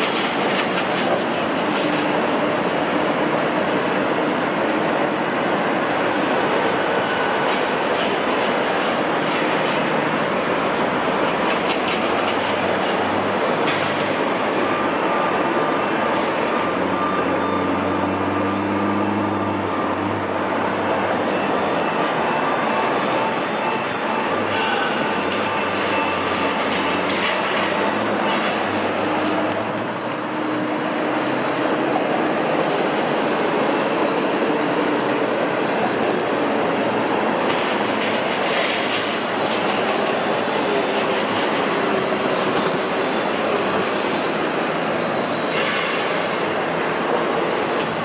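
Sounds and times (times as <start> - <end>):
machinery and city noise: 0.0 - 48.0
high metallic squeals: 21.1 - 37.1.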